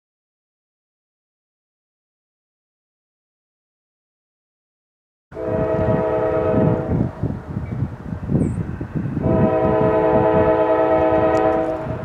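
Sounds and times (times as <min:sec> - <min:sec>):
locomotive air horn blasts: 0:05.3 - 0:07.1, 0:09.2 - 0:12.0
low train rumble: 0:05.3 - 0:12.0.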